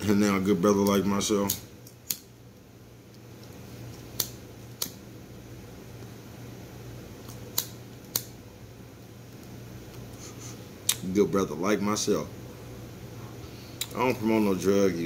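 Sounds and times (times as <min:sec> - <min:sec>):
faint low hum: 0:00.0 - 0:15.0
lighter clicking: 0:07.3 - 0:08.4.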